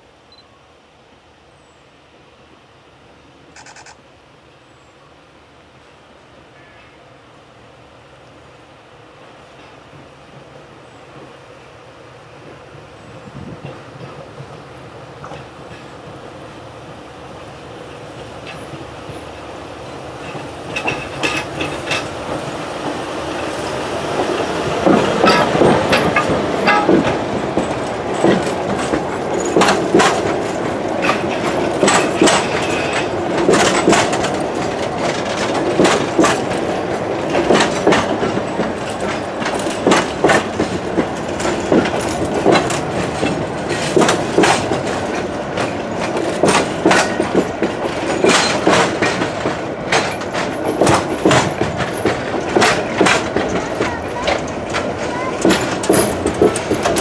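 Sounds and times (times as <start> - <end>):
train wheels clunking over rail joints: 12.4 - 57.0.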